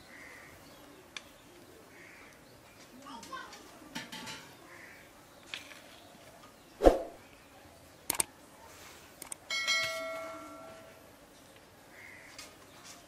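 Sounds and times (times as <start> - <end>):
sharp clicks: 8.1 - 8.3, 9.2 - 9.4.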